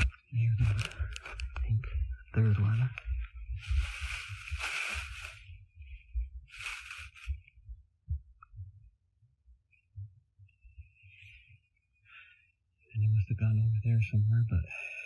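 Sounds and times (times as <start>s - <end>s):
rustling noise: 0.0s - 7.6s
low irregular thumping: 7.2s - 11.0s.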